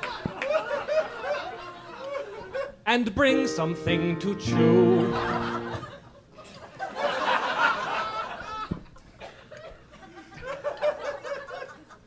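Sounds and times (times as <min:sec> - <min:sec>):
audience laughing: 0:00.0 - 0:02.8, 0:04.8 - 0:12.0
sung chord: 0:03.2 - 0:06.0.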